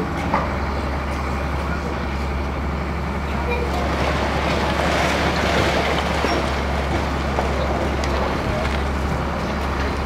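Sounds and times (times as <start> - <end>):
excavator diesel engine: 0.0 - 10.0
crumbling masonry rushing: 3.7 - 10.0.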